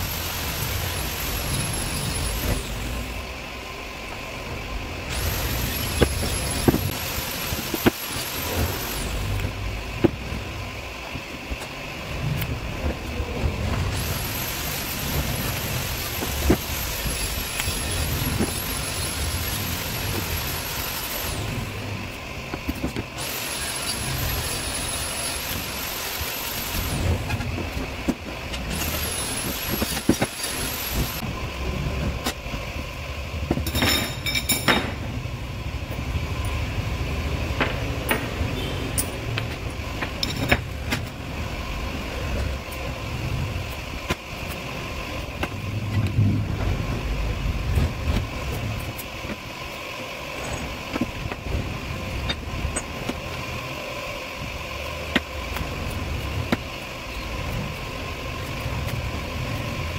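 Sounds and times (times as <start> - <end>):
steady low rumble: 0.0 - 20.5, 30.8 - 38.5, 39.2 - 59.9
electric drill whining: 5.1 - 9.6, 13.9 - 21.8, 23.2 - 27.2, 28.6 - 31.2.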